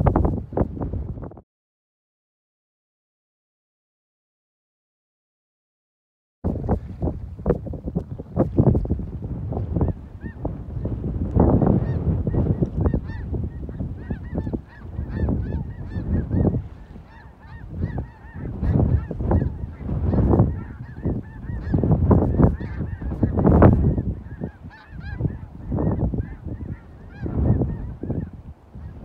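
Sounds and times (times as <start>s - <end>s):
snow geese honking: 11.5s - 29.0s.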